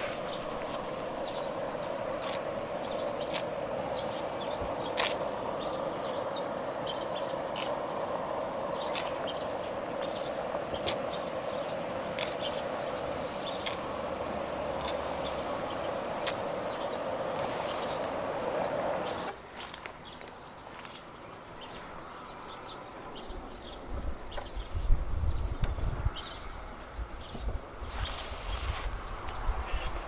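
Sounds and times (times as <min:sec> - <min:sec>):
steady hiss: 0:00.0 - 0:30.0
sharp ticks: 0:13.5 - 0:13.9.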